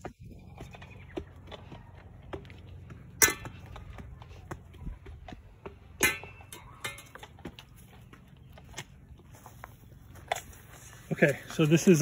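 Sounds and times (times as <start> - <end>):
footsteps on grass and mulch: 7.1 - 12.0.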